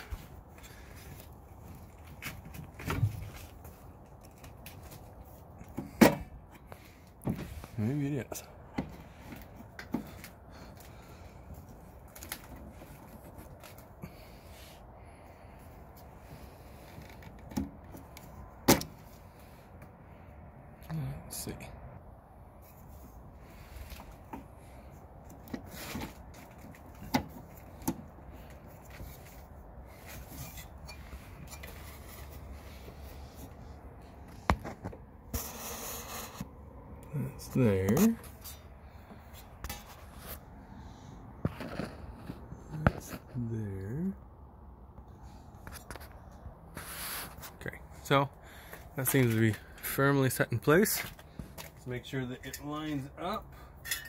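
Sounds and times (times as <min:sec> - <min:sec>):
rough rubbing scrape: 0:28.9 - 0:33.8, 0:35.3 - 0:36.6, 0:46.7 - 0:47.6.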